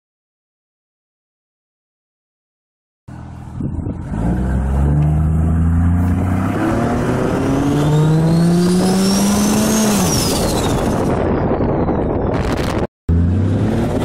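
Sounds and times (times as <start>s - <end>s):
car engine accelerating: 3.1s - 11.4s, 12.4s - 14.0s.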